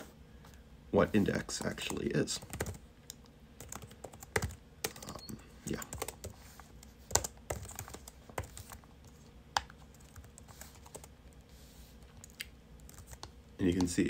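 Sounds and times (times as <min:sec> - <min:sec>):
typing on a computer keyboard: 0:01.8 - 0:02.8, 0:03.6 - 0:06.4, 0:07.1 - 0:08.8, 0:09.6 - 0:11.1, 0:12.2 - 0:13.3.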